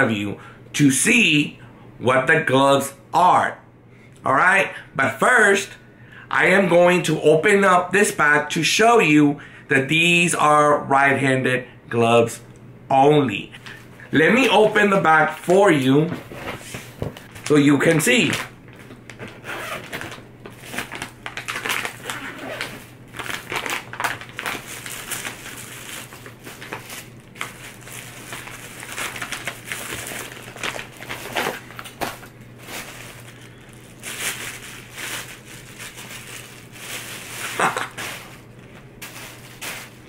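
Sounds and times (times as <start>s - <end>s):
plastic packaging crinkling: 13.6s - 40.0s.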